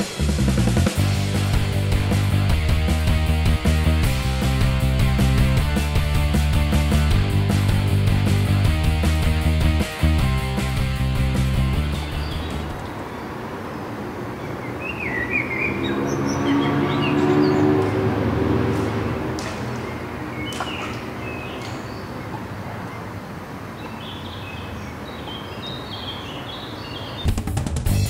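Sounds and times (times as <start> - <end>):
small birds chirping: 10.8 - 18.0, 19.7 - 27.4.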